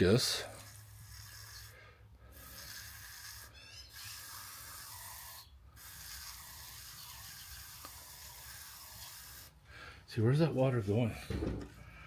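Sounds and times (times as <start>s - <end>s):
pressure sprayer hissing: 0.5s - 9.6s.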